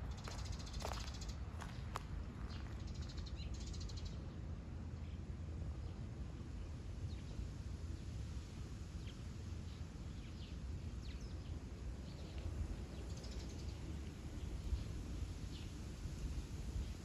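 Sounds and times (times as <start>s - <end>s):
low outdoor rumble: 0.0s - 17.0s
small birds chirping: 0.1s - 4.3s.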